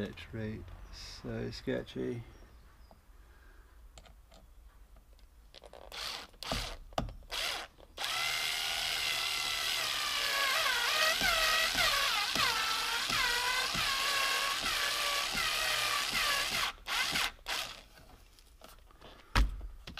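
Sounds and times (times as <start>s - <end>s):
cordless drill drilling into plastic: 5.8s - 17.8s.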